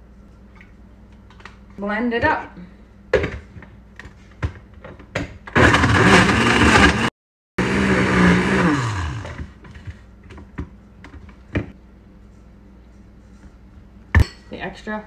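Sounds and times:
blender running: 5.6s - 9.5s.

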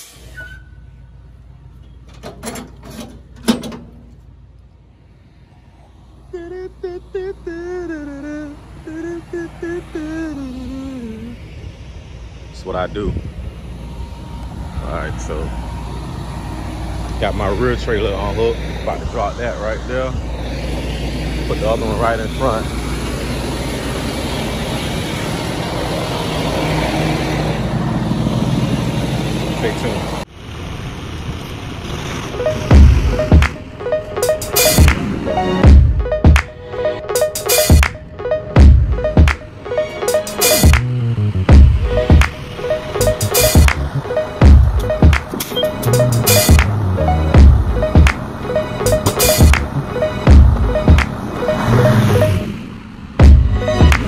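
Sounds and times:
person humming a tune: 6.3s - 11.4s.

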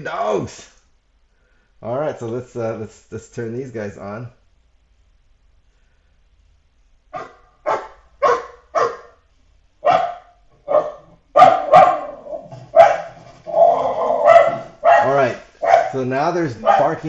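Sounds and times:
dog barking: 7.1s - 9.2s, 9.8s - 13.2s, 14.2s - 17.0s.

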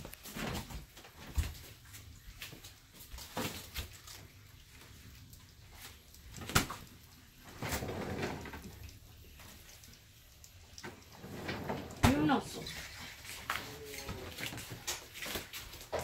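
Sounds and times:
drawer sliding open: 7.6s - 8.6s, 11.2s - 12.2s.

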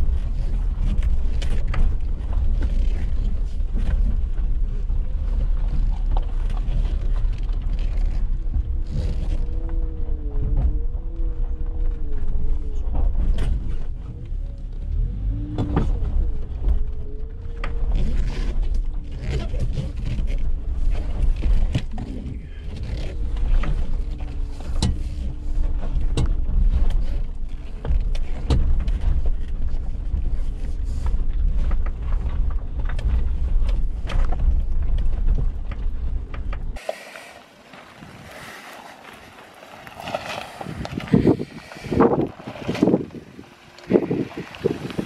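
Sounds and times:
off-road vehicle rumbling: 0.0s - 45.0s
vehicle knocks and rattles: 9.7s - 36.8s.

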